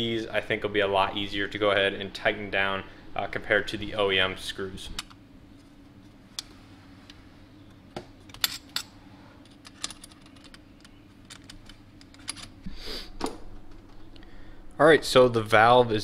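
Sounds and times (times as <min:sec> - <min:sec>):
faint steady hum: 0:00.0 - 0:16.0
allen key metallic clicks: 0:09.5 - 0:12.6.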